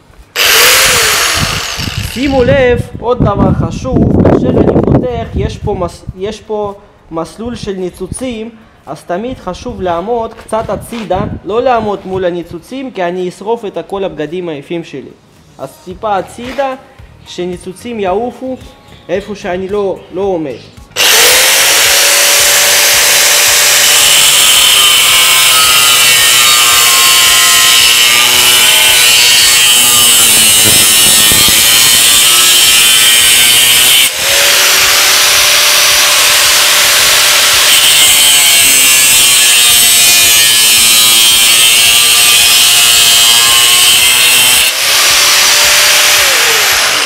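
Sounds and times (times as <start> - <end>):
angle grinder cutting steel tube: 0.2 - 2.6, 21.0 - 47.0.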